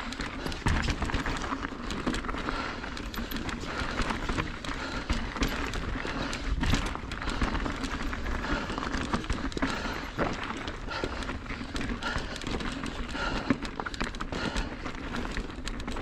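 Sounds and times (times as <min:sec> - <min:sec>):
bike rattling: 0:00.0 - 0:16.0
bike tyres crunching on gravel: 0:00.0 - 0:16.0.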